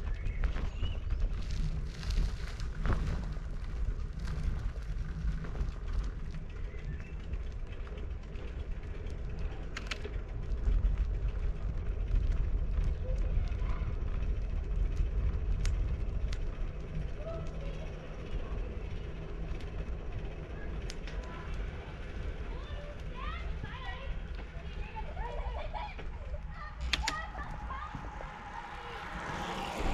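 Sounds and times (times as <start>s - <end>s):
wind on camera microphone: 0.0s - 17.8s
bicycle tyres on asphalt: 0.0s - 29.9s
bike clicks and rattles: 0.0s - 29.9s.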